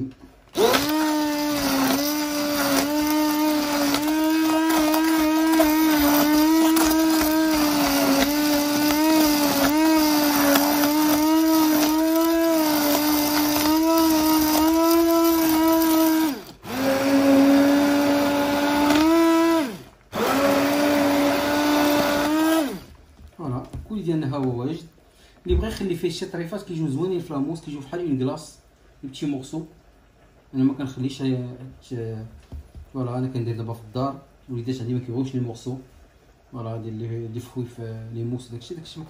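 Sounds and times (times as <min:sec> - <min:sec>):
stick blender motor whine: 0:00.5 - 0:23.0.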